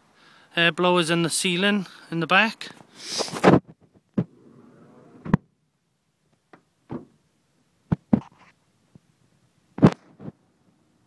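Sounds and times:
knocks and thuds: 6.9s - 7.2s.

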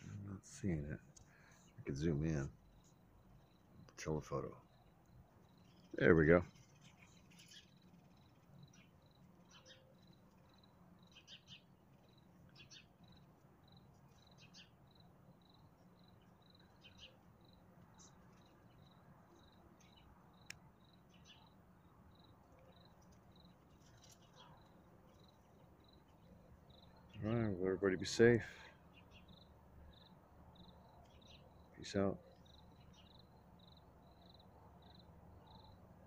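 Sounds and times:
cricket chirping: 2.4s - 27.6s, 29.1s - 36.0s
faint click: 20.4s - 20.6s.

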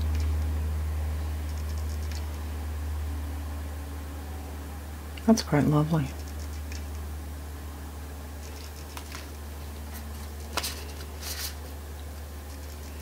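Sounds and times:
steady low hum: 0.0s - 13.0s
cards tapping and rustling: 9.9s - 11.5s.

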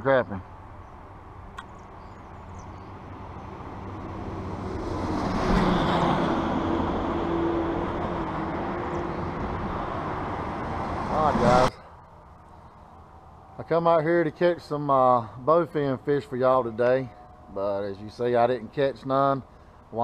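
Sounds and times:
bus engine and tyre noise: 0.6s - 13.8s.

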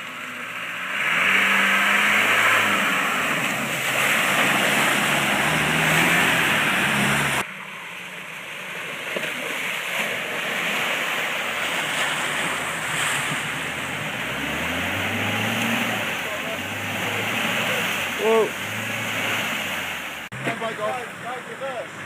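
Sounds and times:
car engine hum: 0.0s - 22.0s
muddy water sloshing: 0.0s - 22.0s.

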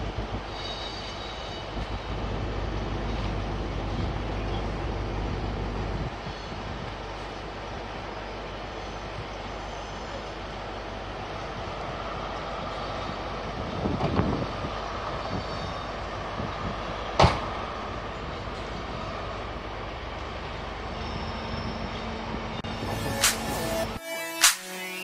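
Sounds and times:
distant locomotive rumble: 0.0s - 23.9s
sharp click: 23.2s - 23.5s.

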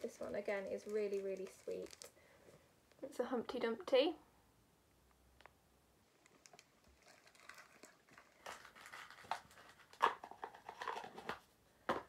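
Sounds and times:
plastic bags crinkling: 0.0s - 2.3s, 6.1s - 11.4s.

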